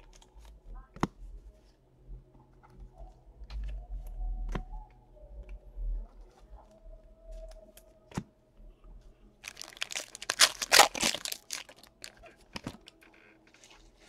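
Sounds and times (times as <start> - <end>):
plastic wrapper tearing and crinkling: 9.4 - 13.0.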